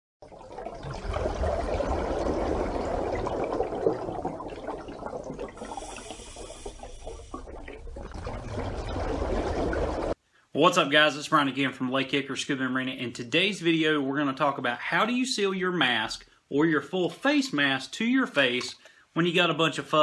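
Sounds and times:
rushing water: 0:00.3 - 0:10.2.

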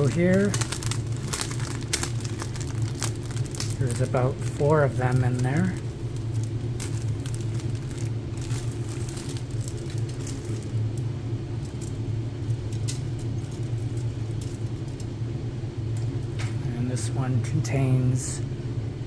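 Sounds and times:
plastic bag crinkling: 0:00.0 - 0:10.9
steady low hum: 0:00.0 - 0:19.0.

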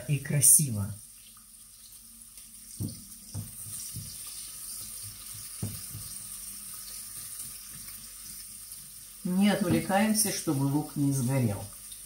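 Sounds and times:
onion sizzling in oil: 0:00.0 - 0:12.0
soft knocks of stirring: 0:02.8 - 0:06.2.

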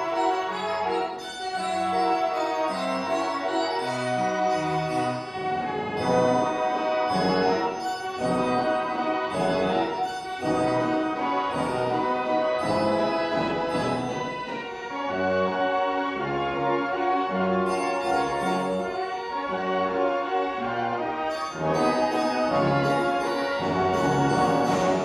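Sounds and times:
fairground band organ playing: 0:01.6 - 0:14.7, 0:21.6 - 0:25.0.

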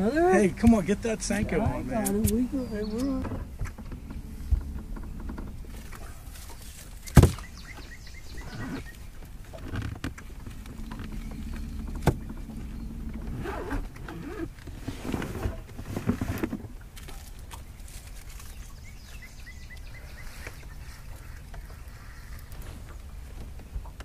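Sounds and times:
muffled knocks and rustles: 0:03.1 - 0:18.6, 0:20.4 - 0:24.0.

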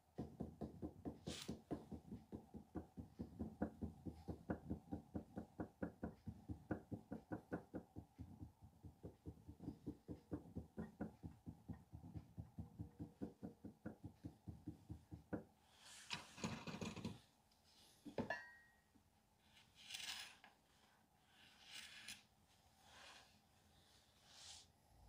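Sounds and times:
soft thuds tapping clay: 0:00.0 - 0:15.6
knock: 0:00.1 - 0:15.5
tool scraping clay: 0:00.2 - 0:17.2, 0:19.4 - 0:23.4.

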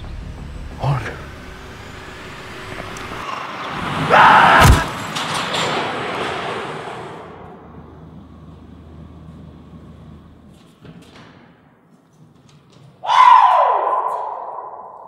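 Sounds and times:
car driving fast: 0:00.0 - 0:10.5
loud car crash: 0:01.3 - 0:08.4.

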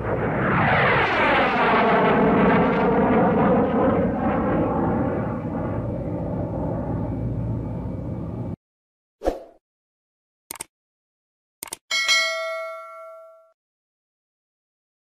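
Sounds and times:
rumbling drone: 0:02.0 - 0:08.6.

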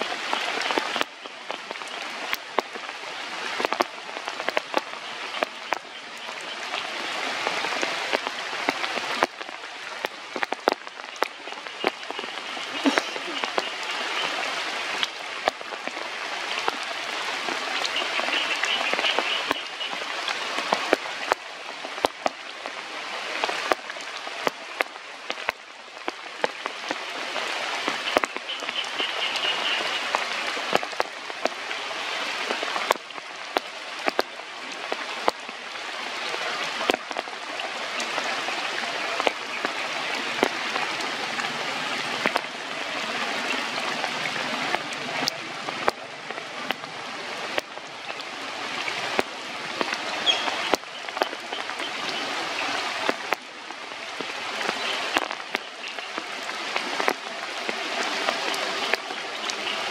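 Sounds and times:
raindrops tapping a surface: 0:00.0 - 0:59.9
steady rain falling: 0:00.0 - 0:59.9.

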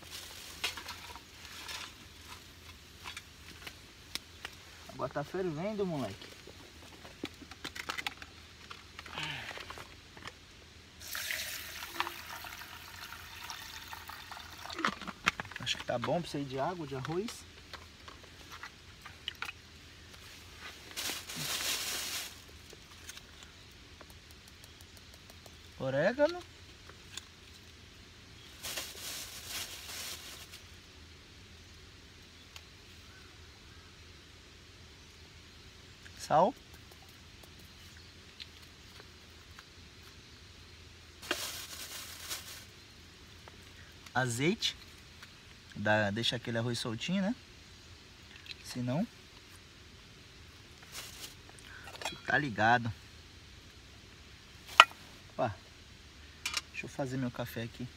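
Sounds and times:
hot water pouring into pot: 0:11.0 - 0:15.1
herb packet rustling: 0:20.2 - 0:23.5, 0:28.5 - 0:30.8, 0:41.2 - 0:42.8, 0:50.8 - 0:52.4.

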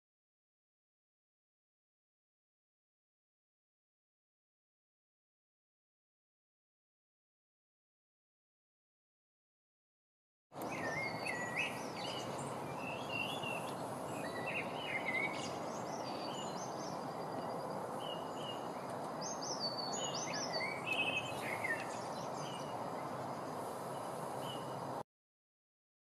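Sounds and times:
finches twittering: 0:10.6 - 0:24.9
steady background hiss: 0:10.6 - 0:25.0.

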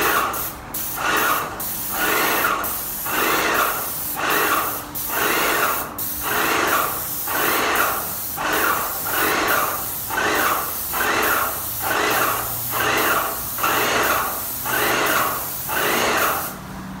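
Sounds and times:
paint spray gun hissing: 0:00.0 - 0:16.7.

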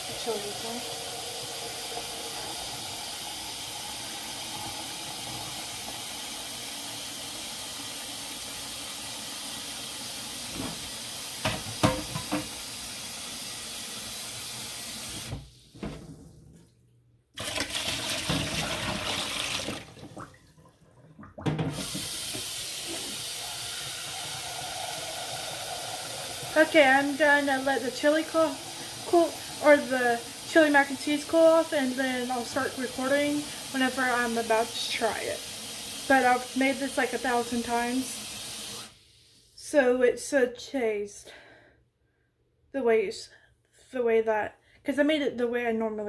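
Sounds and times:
kitchen tap running: 0:00.0 - 0:16.7, 0:17.4 - 0:39.3
cooking pot clanking: 0:11.4 - 0:12.6.

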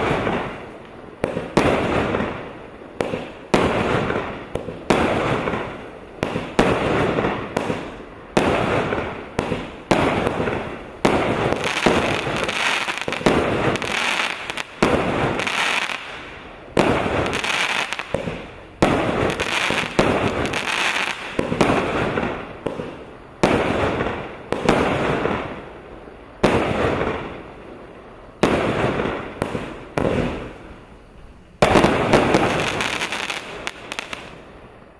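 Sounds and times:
firework shots banging: 0:00.0 - 0:25.6, 0:28.4 - 0:30.6, 0:31.6 - 0:34.4.

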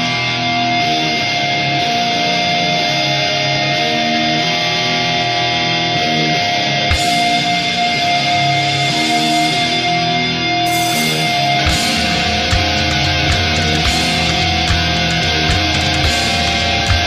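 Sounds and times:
electric guitar chords: 0:00.0 - 0:17.0
high held guitar note: 0:06.9 - 0:17.0.

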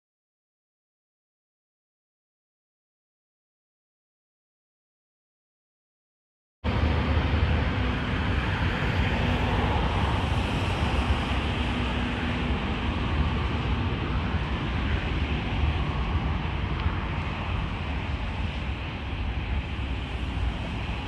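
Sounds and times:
helicopter engines and rotors: 0:06.7 - 0:21.0
wind buffeting microphone: 0:06.7 - 0:21.0.

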